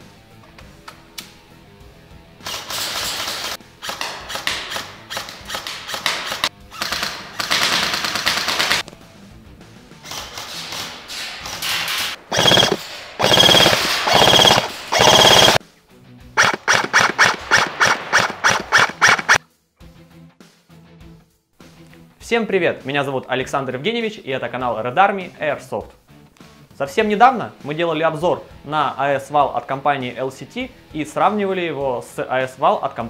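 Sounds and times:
background music: 0:00.0 - 0:12.0, 0:15.6 - 0:33.0
airsoft gun firing bursts: 0:05.6 - 0:08.8, 0:12.3 - 0:15.6, 0:16.4 - 0:19.4.

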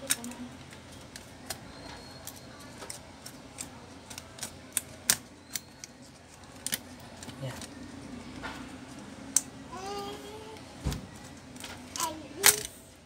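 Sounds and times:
plastic clicks and snaps: 0:02.2 - 0:07.7.

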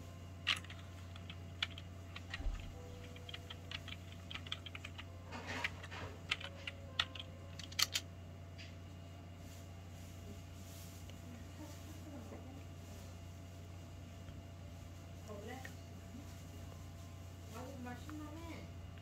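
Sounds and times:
computer keyboard typing: 0:00.4 - 0:08.0.

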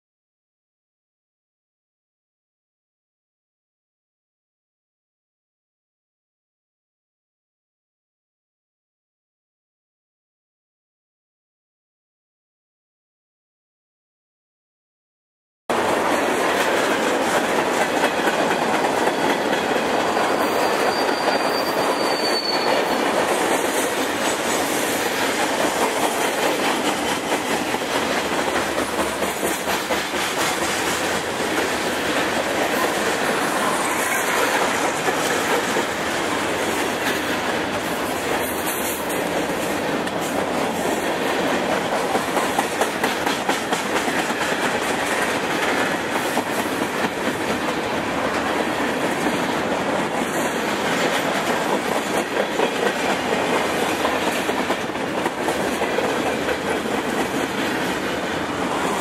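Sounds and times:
train wheels clacking over rail joints: 0:15.7 - 0:59.0
high wheel squeal: 0:19.1 - 0:23.2.

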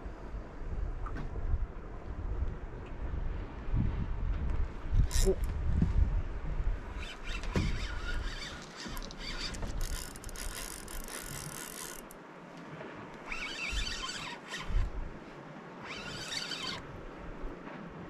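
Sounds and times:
fishing reel drag squealing: 0:05.1 - 0:05.4, 0:06.9 - 0:12.2, 0:13.2 - 0:14.9, 0:15.8 - 0:16.9.

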